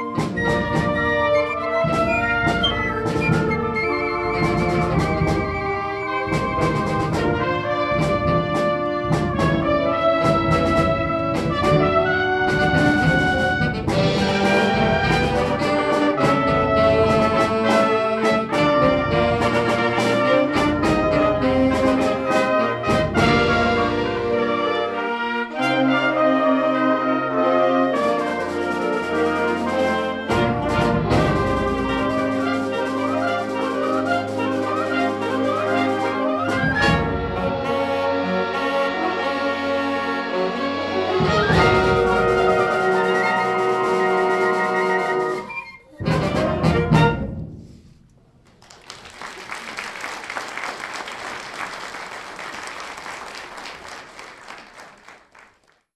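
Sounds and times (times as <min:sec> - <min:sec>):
percussion strikes: 0:00.0 - 0:24.4
concert band playing: 0:00.0 - 0:47.8.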